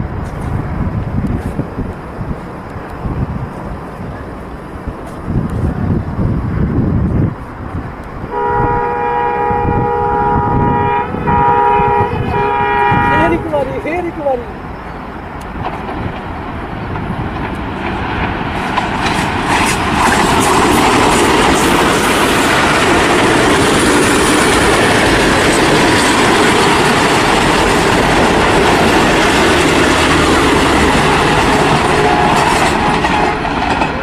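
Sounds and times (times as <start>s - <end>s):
train rumbling past: 0.0s - 34.0s
wheels clacking over rail joints: 12.3s - 34.0s.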